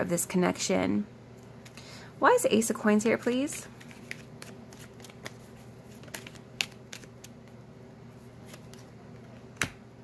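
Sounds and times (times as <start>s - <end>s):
cards being shuffled: 3.4s - 7.6s, 8.3s - 9.8s.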